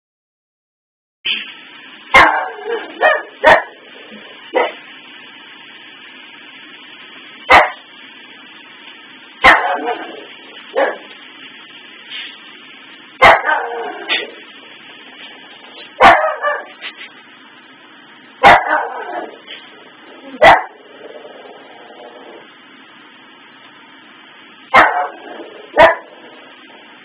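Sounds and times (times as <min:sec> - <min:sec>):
dog barking: 0:02.1 - 0:03.8, 0:04.6 - 0:04.8, 0:07.5 - 0:07.8, 0:09.4 - 0:11.1, 0:13.2 - 0:14.3, 0:16.0 - 0:16.8, 0:18.4 - 0:19.5, 0:20.4 - 0:20.8, 0:24.7 - 0:26.1.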